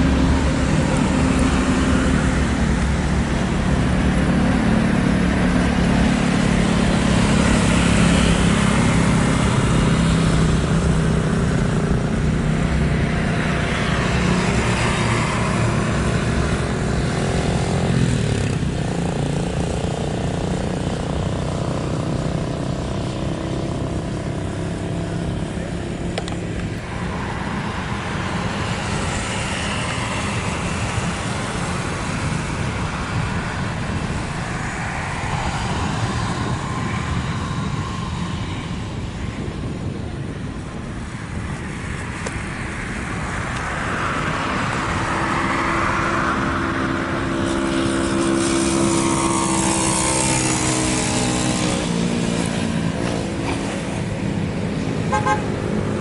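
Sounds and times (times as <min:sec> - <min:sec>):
jet engines rumbling: 0:00.0 - 0:22.7, 0:23.9 - 0:56.0
aircraft passing with falling tones: 0:42.7 - 0:55.0.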